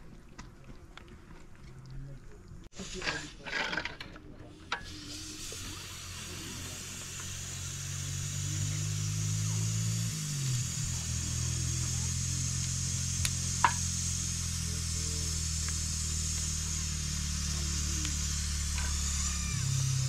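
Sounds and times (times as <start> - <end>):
engine running: 4.6 - 20.0.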